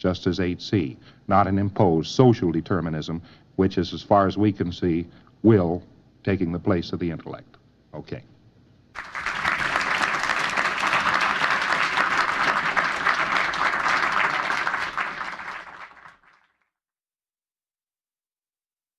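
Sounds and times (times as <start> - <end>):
audience applauding: 9.0 - 16.6.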